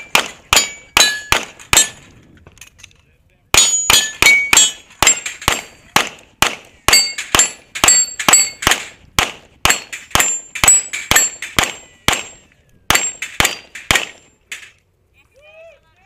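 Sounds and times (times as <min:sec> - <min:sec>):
pistol shots: 0:00.0 - 0:02.0, 0:03.6 - 0:14.7
metallic ring of steel targets: 0:00.0 - 0:02.8, 0:03.6 - 0:06.1, 0:06.9 - 0:08.9, 0:09.6 - 0:14.8.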